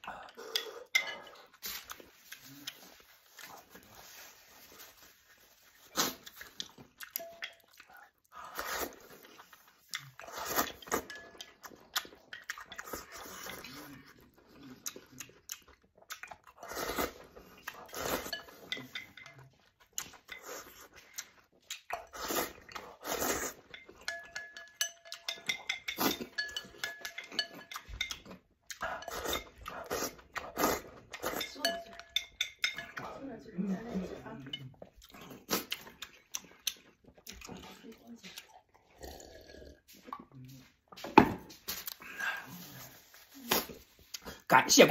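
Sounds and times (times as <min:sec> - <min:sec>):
person chewing: 0:00.0 - 0:33.1, 0:34.0 - 0:44.5
person slurping noodles: 0:10.0 - 0:11.1, 0:16.5 - 0:18.4, 0:21.9 - 0:23.6, 0:38.7 - 0:40.1.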